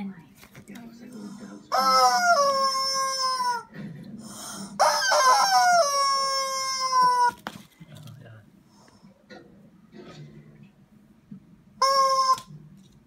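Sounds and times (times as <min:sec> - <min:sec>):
rubber chicken toy squawking: 0:01.7 - 0:03.7, 0:04.8 - 0:07.5, 0:11.8 - 0:12.5.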